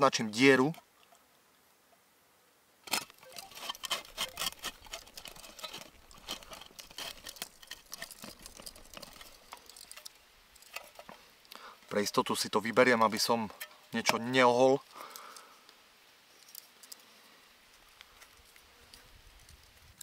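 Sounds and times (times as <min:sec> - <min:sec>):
pointed tool scratching wood: 0:02.9 - 0:09.7.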